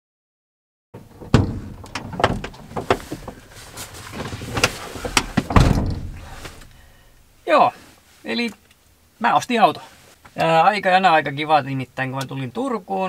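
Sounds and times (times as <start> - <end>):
knocks and clunks in van cab: 1.0 - 6.8
loud thump: 1.2 - 3.4, 4.2 - 6.8.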